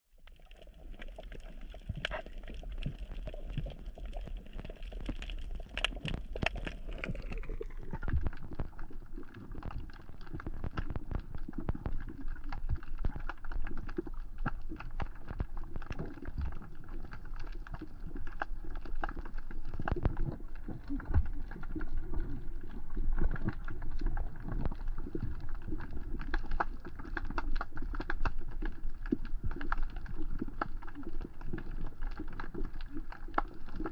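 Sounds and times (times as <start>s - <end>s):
low underwater rumble: 0.1s - 33.9s.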